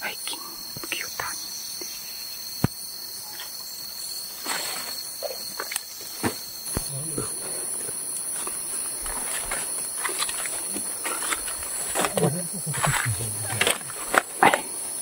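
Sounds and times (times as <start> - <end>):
insects droning: 0.0 - 15.0
footsteps on forest trail: 4.4 - 15.0.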